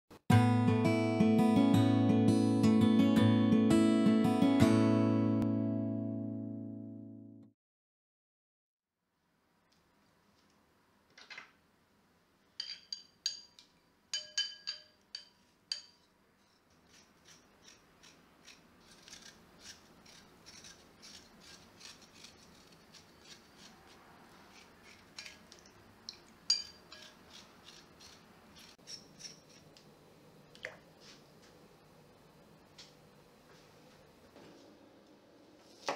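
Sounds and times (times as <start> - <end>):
clinks on glass bowl: 12.6 - 13.6, 14.2 - 16.0, 26.5 - 27.0
ginger skin being scraped: 16.4 - 25.4, 26.9 - 29.7.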